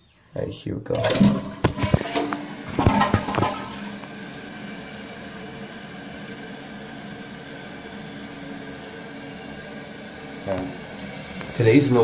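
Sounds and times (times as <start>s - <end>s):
toilet flushing clunks: 0.9s - 12.0s
water hissing into toilet tank: 1.0s - 12.0s.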